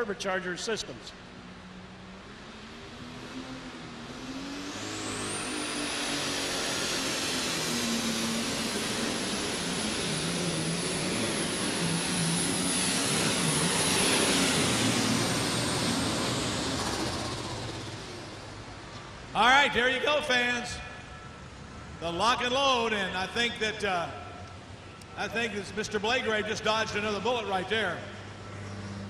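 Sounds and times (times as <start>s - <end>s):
turbochargers whining: 0.0s - 29.0s
diesel engine running hard: 1.2s - 19.3s, 26.6s - 29.0s.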